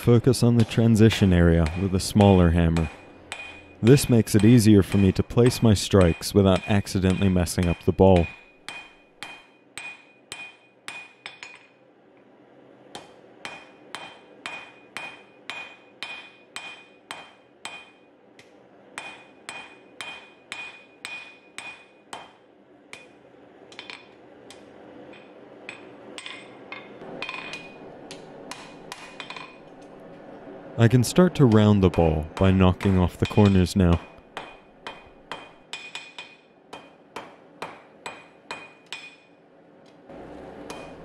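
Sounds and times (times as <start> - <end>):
anvil ringing: 0.0 - 11.7, 31.3 - 39.4
hammer striking steel on anvil: 0.0 - 11.8, 12.9 - 29.7, 31.2 - 39.4, 40.7 - 41.0.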